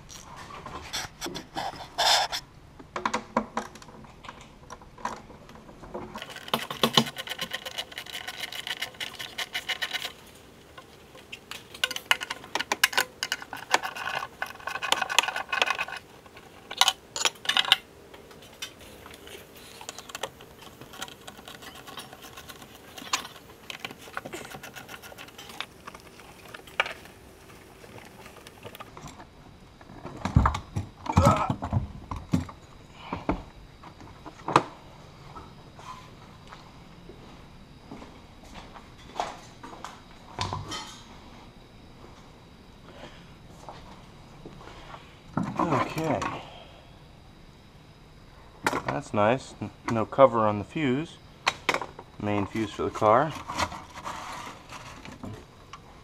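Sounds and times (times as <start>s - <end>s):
tools and metal parts clinking: 6.2s - 29.2s.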